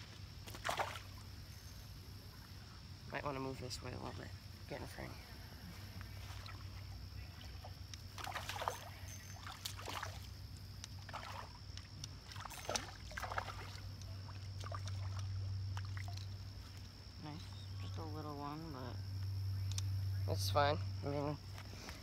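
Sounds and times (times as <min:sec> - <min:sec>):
high insect drone: 0:00.0 - 0:22.0
fish splashing in water: 0:00.5 - 0:01.2, 0:07.4 - 0:16.4.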